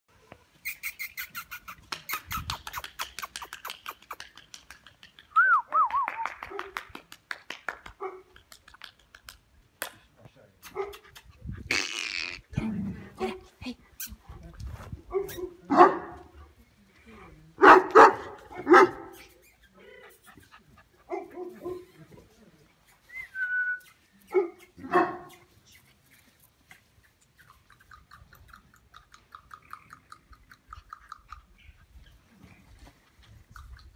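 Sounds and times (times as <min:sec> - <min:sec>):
dog yipping: 0:00.6 - 0:04.2
person making kissing sounds: 0:00.6 - 0:07.2, 0:08.3 - 0:10.0, 0:10.6 - 0:12.4, 0:22.8 - 0:31.5, 0:33.3 - 0:33.9
short whistle: 0:05.3 - 0:06.3, 0:23.1 - 0:24.0
dog barking: 0:10.7 - 0:11.0, 0:15.1 - 0:16.2, 0:17.6 - 0:19.2, 0:24.3 - 0:25.3.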